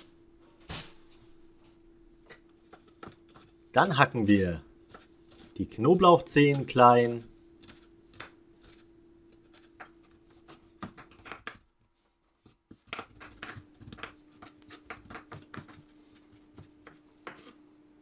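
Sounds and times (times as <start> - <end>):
knife chopping on wooden board: 4.8 - 8.8, 9.4 - 11.6, 12.4 - 17.5.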